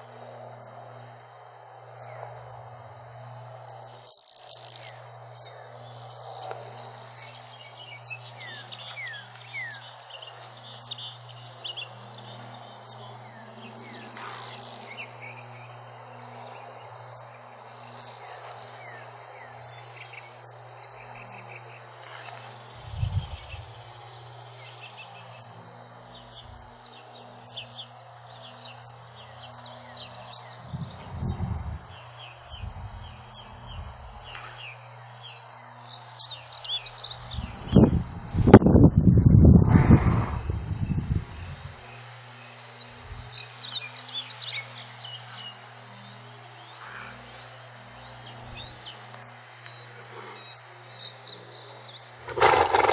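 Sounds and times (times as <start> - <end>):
insects chirping: 0.0 - 52.9
steady low hum: 22.6 - 24.4, 30.4 - 35.0, 37.0 - 42.2, 42.9 - 43.4
high steady buzz: 22.8 - 24.0, 30.6 - 34.7
brief low rumbles: 22.9 - 23.8, 30.6 - 34.6.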